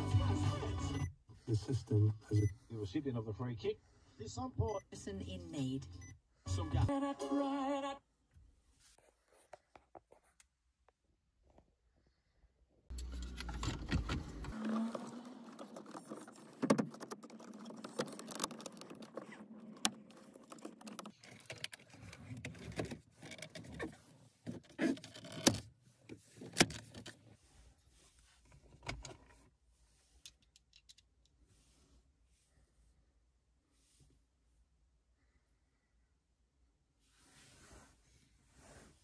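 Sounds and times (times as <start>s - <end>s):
plastic trim rustling: 13.0s - 23.9s.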